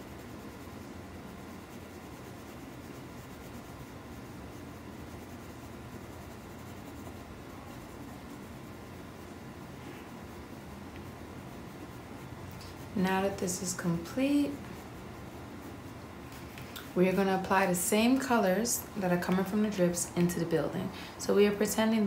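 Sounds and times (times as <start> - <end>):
colored pencil shading on paper: 0.0 - 16.1.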